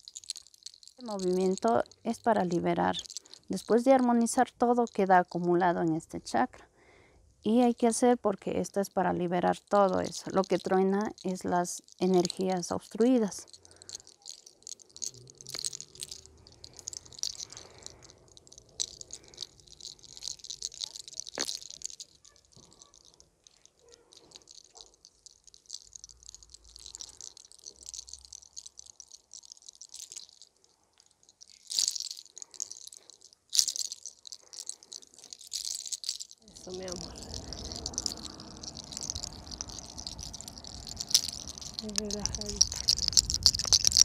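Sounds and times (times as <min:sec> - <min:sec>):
small clicks: 0:09.7 - 0:44.0
neck cracking: 0:13.2 - 0:44.0.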